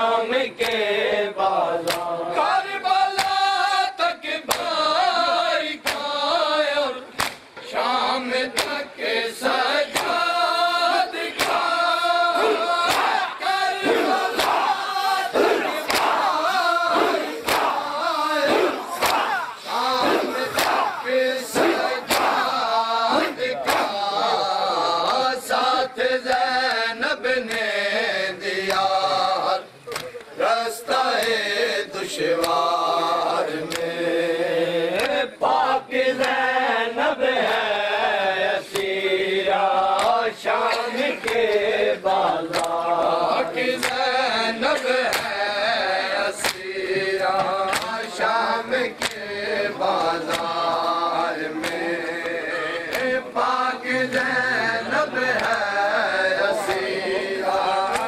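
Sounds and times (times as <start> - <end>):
men chanting a lament: 0.0 - 58.0
hands slapping chests: 1.8 - 2.1, 3.1 - 3.5, 4.5 - 4.8, 5.8 - 6.1, 7.1 - 7.5, 8.5 - 8.8, 9.9 - 10.3, 11.3 - 11.8, 12.4 - 24.1, 27.4 - 27.7, 29.9 - 30.3, 31.1 - 31.4, 32.4 - 32.6, 33.6 - 34.0, 34.9 - 35.2, 36.2 - 36.4, 38.7 - 39.0, 39.9 - 40.3, 41.2 - 41.7, 42.5 - 44.1, 44.8 - 45.4, 46.4 - 48.2, 48.9 - 49.3, 49.9 - 53.2, 55.3 - 55.7, 56.6 - 56.9, 57.8 - 58.0.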